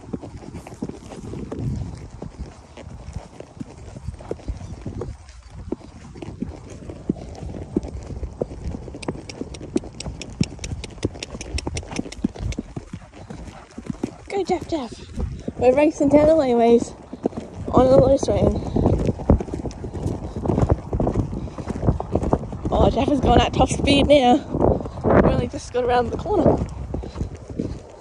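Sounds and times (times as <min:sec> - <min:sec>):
horse hooves clip-clopping: 0:00.0 - 0:28.0.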